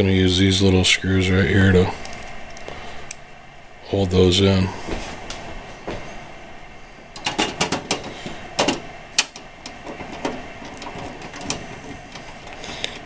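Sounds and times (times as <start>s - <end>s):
metal clicks: 7.2s - 13.0s.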